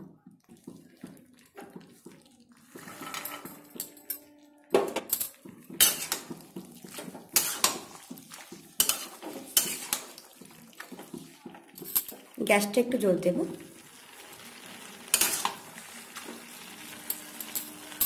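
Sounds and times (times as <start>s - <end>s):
metal spatula scraping steel pan: 2.8s - 3.5s, 5.8s - 8.2s, 8.8s - 10.2s, 15.1s - 15.6s.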